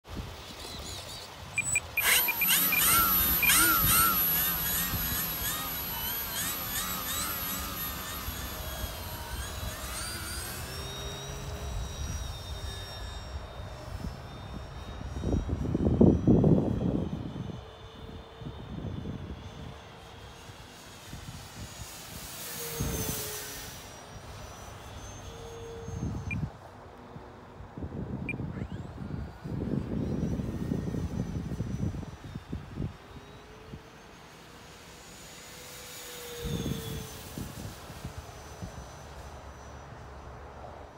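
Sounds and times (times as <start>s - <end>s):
electric motor and propeller whine: 0.0s - 40.9s
steady very high whine: 0.1s - 40.9s
high electronic beeps: 1.6s - 4.9s.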